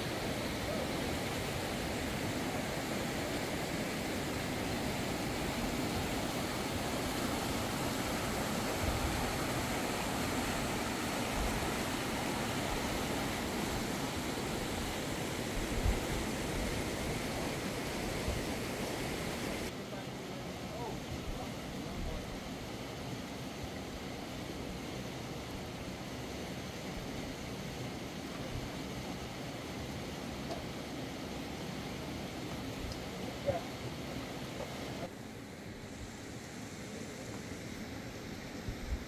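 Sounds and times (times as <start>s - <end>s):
river rapids rushing: 0.0s - 23.5s.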